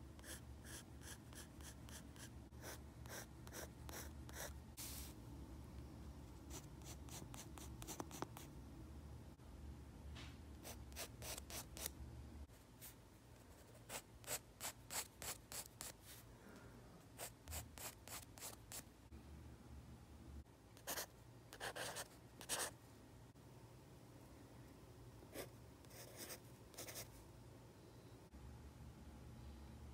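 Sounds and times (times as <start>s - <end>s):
pencil scratching on paper: 0.2s - 4.5s.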